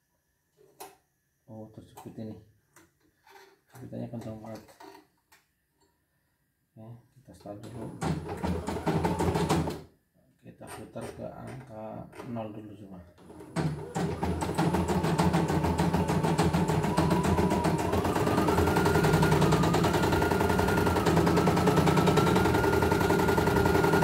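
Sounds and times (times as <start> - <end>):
motor hum: 13.6 - 24.0.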